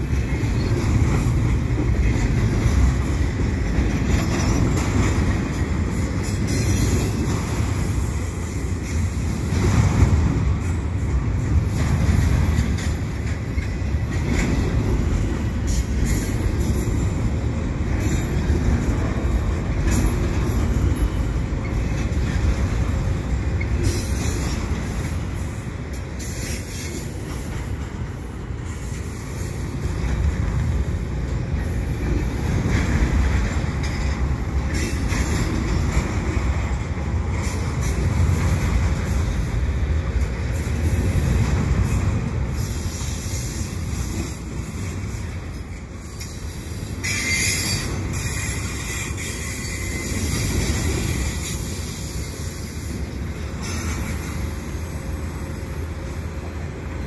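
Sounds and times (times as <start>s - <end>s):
freight train wheels rumbling on rail: 0.0s - 57.0s
metal clanks and squeals: 0.1s - 7.4s, 12.6s - 14.8s, 19.8s - 25.6s, 41.8s - 55.0s.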